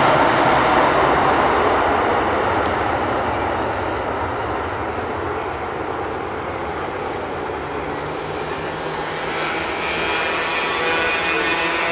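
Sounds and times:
jet engines roaring: 0:00.0 - 0:11.9.

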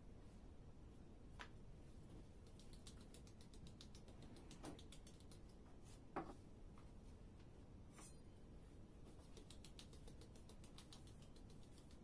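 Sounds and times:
soft pat of dough: 0:08.9 - 0:12.0.

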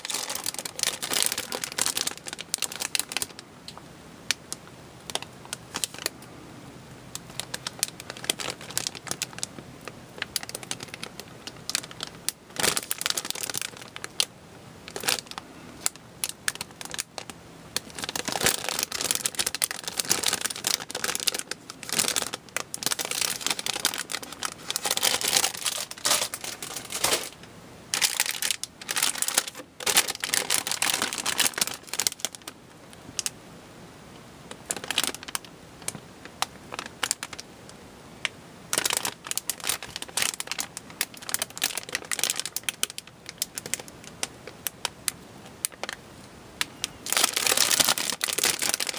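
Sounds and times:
plastic bags crinkling: 0:00.0 - 0:03.4, 0:04.3 - 0:06.2, 0:07.1 - 0:33.3, 0:34.5 - 0:37.5, 0:38.7 - 0:46.0, 0:46.7 - 0:48.9
plastic frames clicking: 0:18.2 - 0:27.4.

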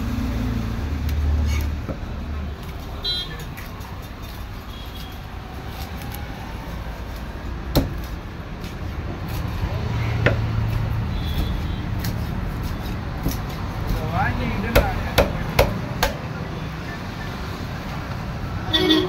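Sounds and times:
cleaver chopping fish on wood block: 0:14.7 - 0:16.2.

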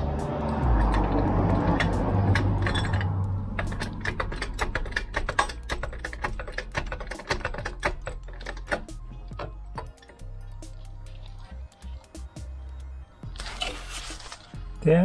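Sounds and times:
ratchet wrench clicking: 0:00.5 - 0:09.0.

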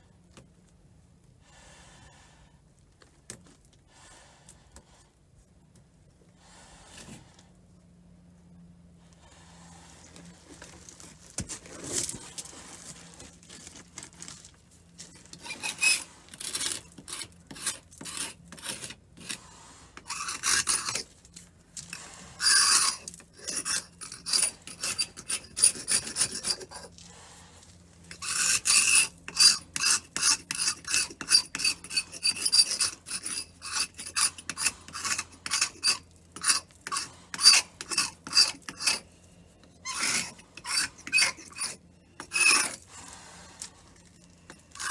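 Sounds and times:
hand tool scraping wood: 0:09.1 - 0:44.9.

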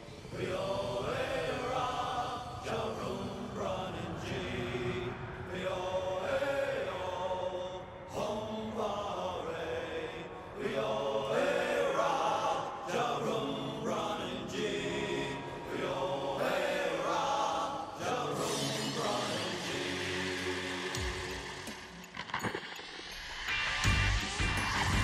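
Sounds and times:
chanted vocal line: 0:00.0 - 0:25.0
theme music backing: 0:18.1 - 0:25.0.

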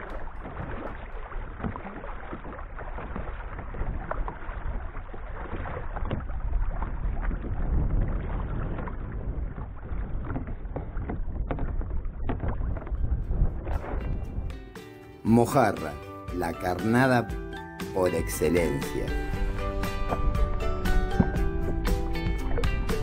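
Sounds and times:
kayak paddle pulling through water: 0:00.0 - 0:14.7, 0:18.6 - 0:23.0
low wind rumble on microphone: 0:00.0 - 0:14.7, 0:19.2 - 0:23.0
water splashes and drips: 0:00.0 - 0:14.9, 0:15.8 - 0:23.0.

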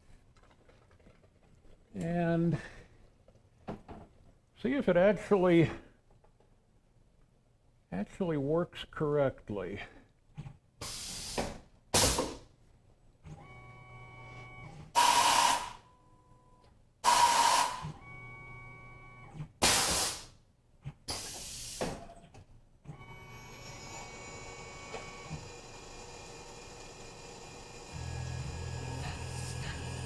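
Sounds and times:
compressed air hisses: 0:10.8 - 0:12.2, 0:19.6 - 0:20.3, 0:21.1 - 0:21.9
motor whine: 0:22.9 - 0:30.0
spindle running: 0:23.2 - 0:30.0.

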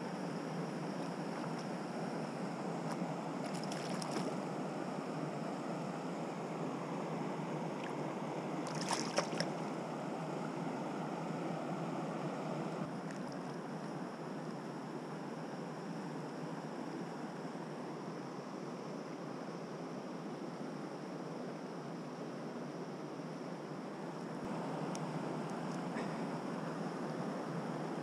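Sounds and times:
stream water rushing: 0:00.8 - 0:05.4, 0:06.5 - 0:13.4
fish splashing at surface: 0:03.5 - 0:04.3, 0:08.7 - 0:09.5.

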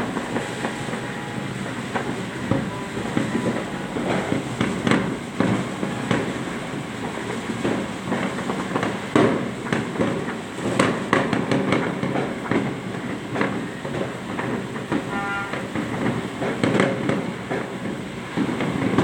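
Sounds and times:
fireworks bangs and crackles: 0:00.0 - 0:19.0
short pitched tone: 0:00.3 - 0:06.6.

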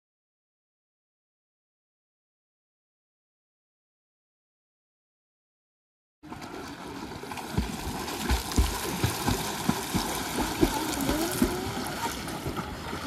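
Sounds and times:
water splashing from swimmers: 0:06.2 - 0:13.0.

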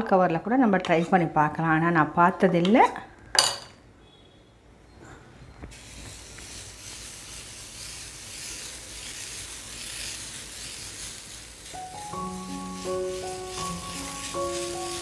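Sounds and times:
batter sizzling on hot pan: 0:05.7 - 0:15.0.

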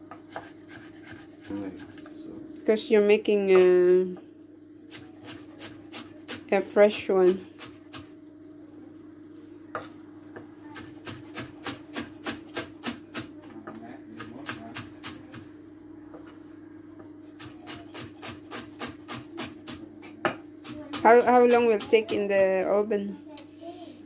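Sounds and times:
knife chopping on wooden board: 0:00.1 - 0:02.0, 0:10.8 - 0:13.3.

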